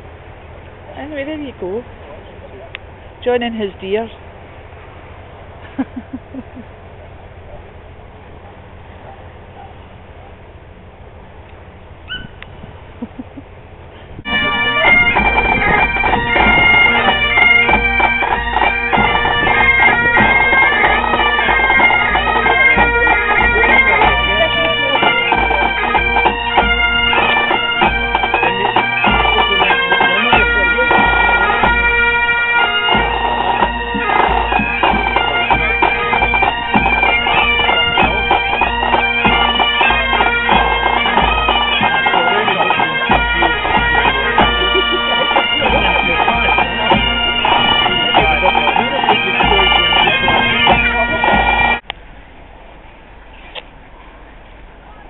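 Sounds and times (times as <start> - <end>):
bagpipe music: 14.2 - 51.8.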